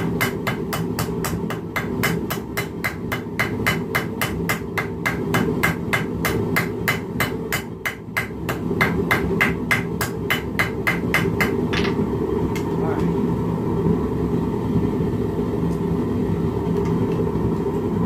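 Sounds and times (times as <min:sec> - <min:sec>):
hammer striking steel on anvil: 0:00.0 - 0:12.0.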